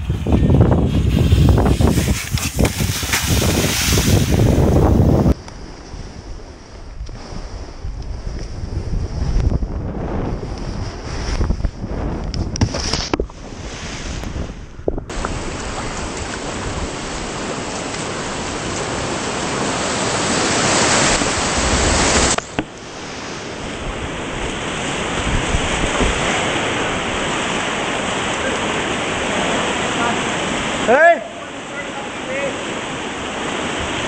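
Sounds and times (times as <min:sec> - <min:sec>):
spray hitting helmet: 0:01.0 - 0:05.0
white water rushing: 0:01.5 - 0:05.4, 0:15.1 - 0:34.0.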